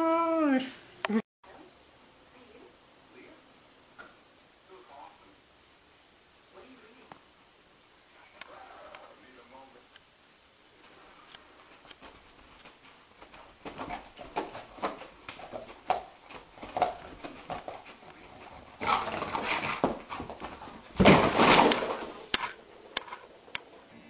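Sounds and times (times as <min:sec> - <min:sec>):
dog scrabbling on carpet: 0:12.0 - 0:22.1.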